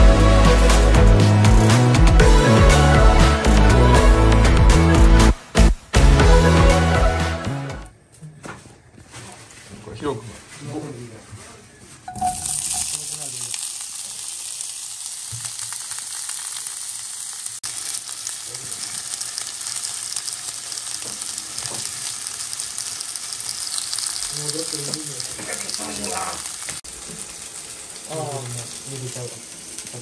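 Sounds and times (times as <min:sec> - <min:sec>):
food sizzling in frying pan: 0:12.1 - 0:30.0.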